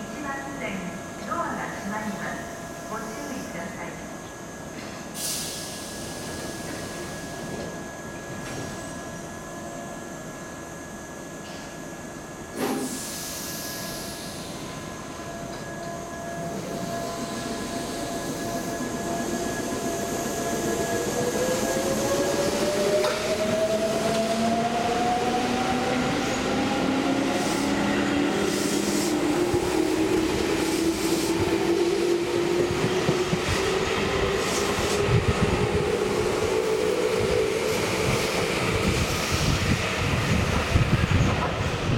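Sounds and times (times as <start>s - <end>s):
air hiss burst: 5.1s - 7.1s, 12.6s - 14.5s.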